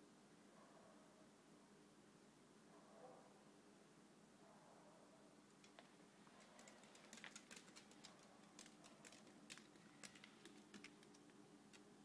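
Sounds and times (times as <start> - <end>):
dog claws tapping: 5.6 - 11.9.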